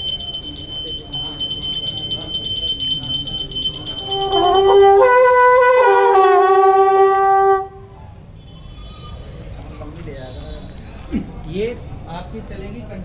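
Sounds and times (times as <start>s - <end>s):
brass horns blaring fanfare: 4.2s - 7.8s.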